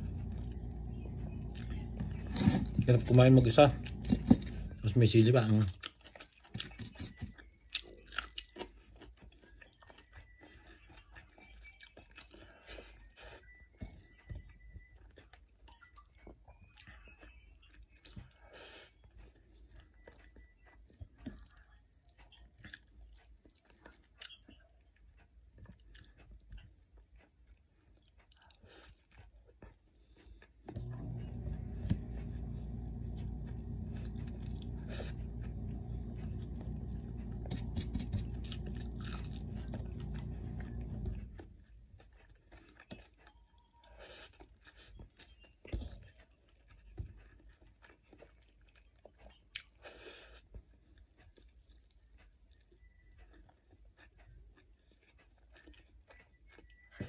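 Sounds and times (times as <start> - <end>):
low mechanical hum: 0.0 - 5.9, 30.6 - 42.3
person chewing and smacking: 0.0 - 57.0.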